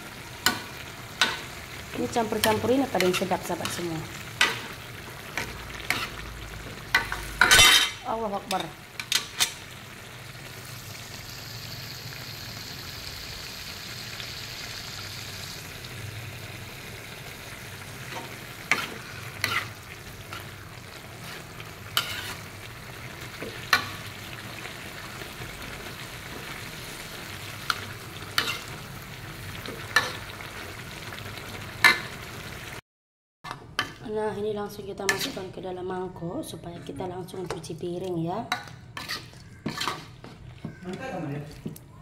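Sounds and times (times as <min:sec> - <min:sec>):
vegetables sizzling in a wok: 0:00.0 - 0:32.8, 0:33.5 - 0:42.0
spatula scraping a wok: 0:02.2 - 0:09.6, 0:18.0 - 0:24.2, 0:26.2 - 0:28.8, 0:35.0 - 0:35.6, 0:38.5 - 0:41.1.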